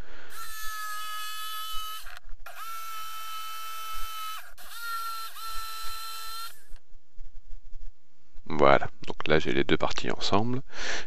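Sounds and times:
electric jigsaw cutting wood: 0.3 - 6.6.

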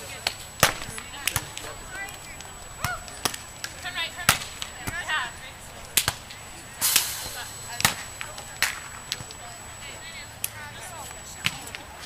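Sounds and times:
volleyballs struck by hand: 0.2 - 1.7, 2.3 - 5.1, 5.9 - 6.3
short hiss of noise: 6.8 - 7.6.

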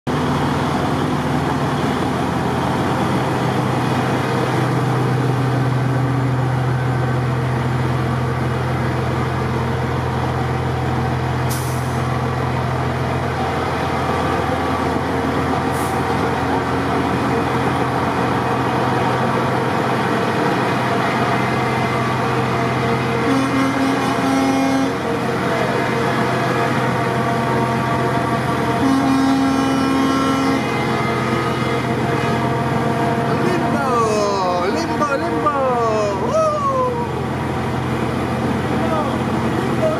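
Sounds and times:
heavy truck engines rumbling: 0.1 - 39.9.

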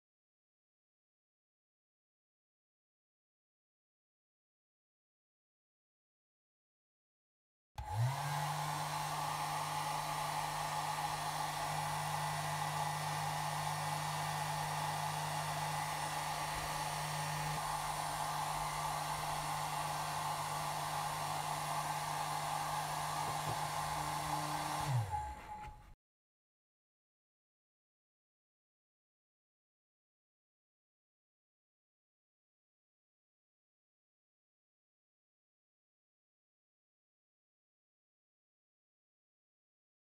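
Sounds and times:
hair dryer running: 7.8 - 26.0.

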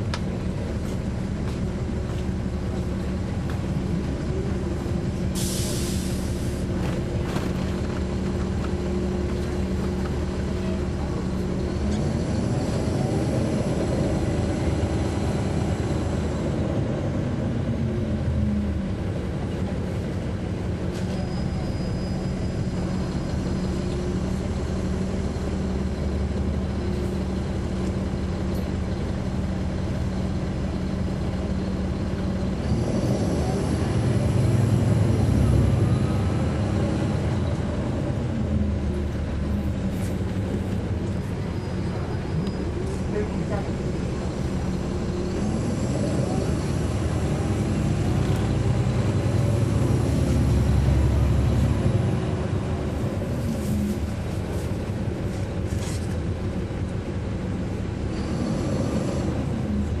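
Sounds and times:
bus diesel engine running: 0.0 - 60.0.

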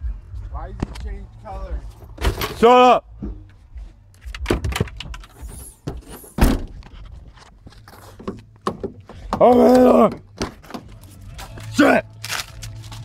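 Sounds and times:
dull thumps and knocks: 8.1 - 9.5.

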